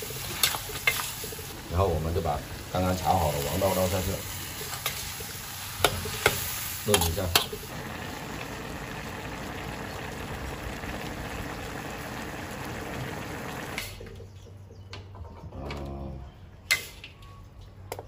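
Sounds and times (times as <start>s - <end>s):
stew bubbling in a wok: 0.0s - 13.9s.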